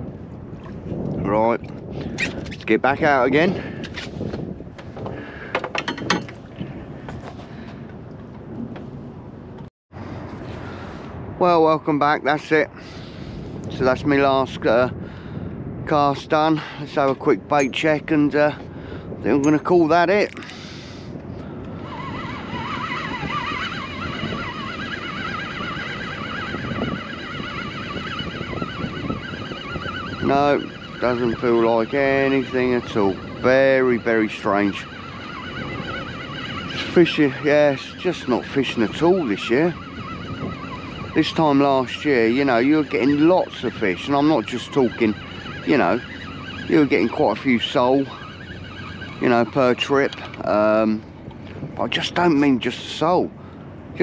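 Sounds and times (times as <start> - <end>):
fishing reel whining: 21.7 - 51.1.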